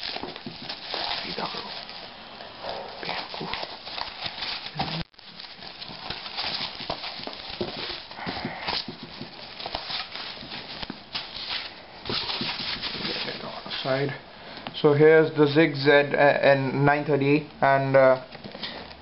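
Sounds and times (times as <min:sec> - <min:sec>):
plastic crinkling and rustling: 0:00.0 - 0:14.1.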